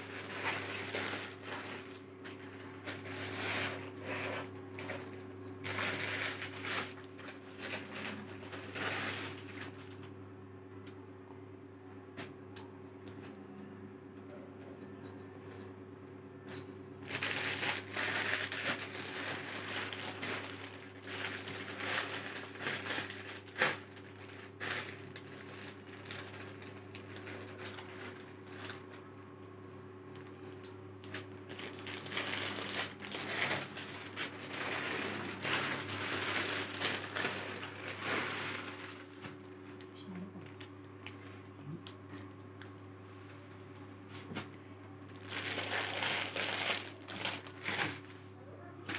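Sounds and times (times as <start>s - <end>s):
cloth and plastic rustling: 0.0s - 10.1s, 17.0s - 29.0s, 31.0s - 41.5s, 45.2s - 48.2s
steady low hum: 0.0s - 48.9s.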